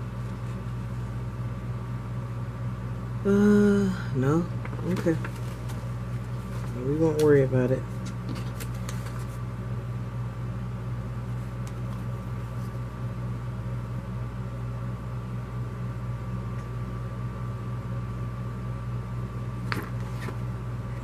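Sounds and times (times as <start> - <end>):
low machine hum: 0.0 - 21.0
paper rustling: 4.6 - 9.4, 19.7 - 20.4.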